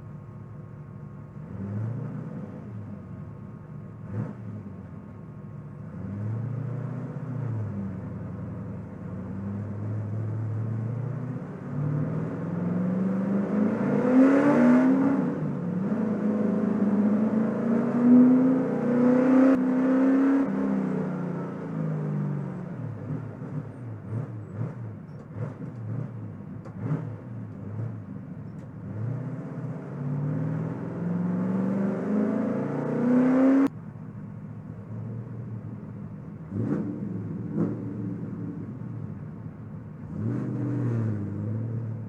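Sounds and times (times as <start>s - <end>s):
race car engine accelerating: 9.3s - 33.7s, 36.5s - 38.8s.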